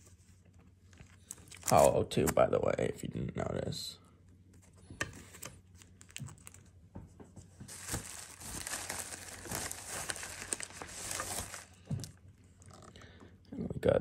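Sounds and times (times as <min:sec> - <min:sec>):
packaging crinkling: 0:00.9 - 0:02.0, 0:05.2 - 0:06.7, 0:07.6 - 0:13.0.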